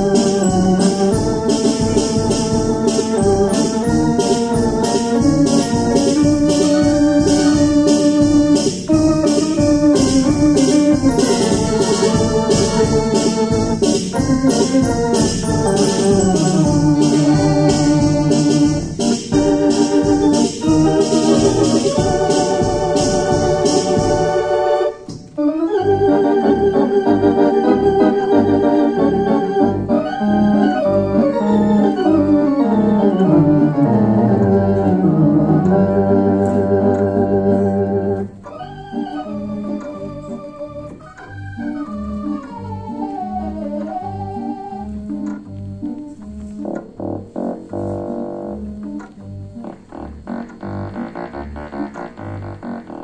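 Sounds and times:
theatre organ playing: 0.0s - 53.0s.

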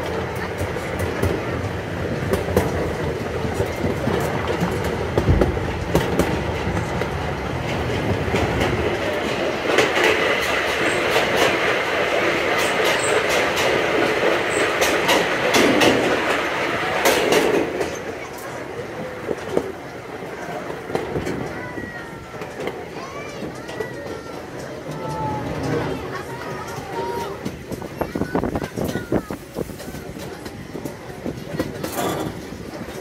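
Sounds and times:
rail joint clacks: 0.0s - 33.0s
train rumbling on track: 0.0s - 33.0s.

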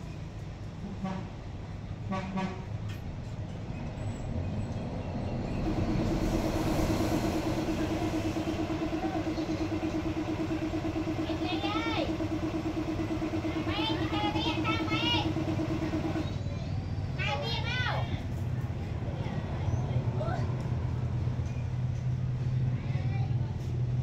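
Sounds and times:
low background rumble: 3.2s - 16.4s
hiss: 5.6s - 8.6s.

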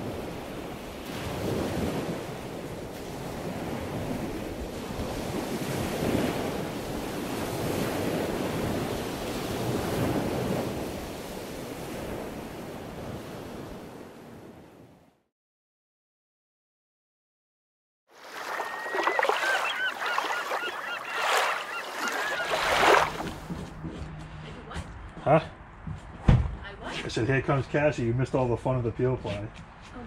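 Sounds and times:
ocean waves washing in: 0.0s - 15.2s, 18.1s - 23.5s.

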